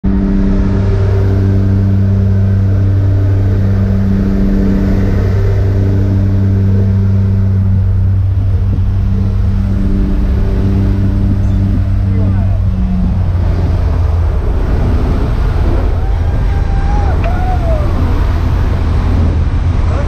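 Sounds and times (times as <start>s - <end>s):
plane engines droning: 0.0s - 20.0s
wind rushing through open door: 12.3s - 20.0s.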